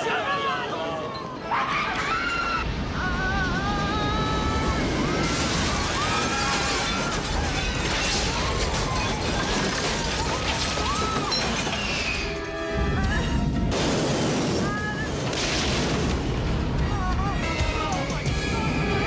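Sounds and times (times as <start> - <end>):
debris crashing: 2.6 - 18.9
glass shattering: 5.2 - 12.4
dramatic orchestral score: 10.9 - 19.0.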